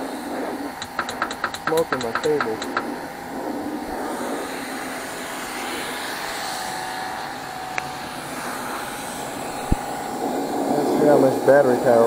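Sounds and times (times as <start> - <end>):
steady mechanical hum: 0.0 - 12.0
sharp click: 0.8 - 2.9.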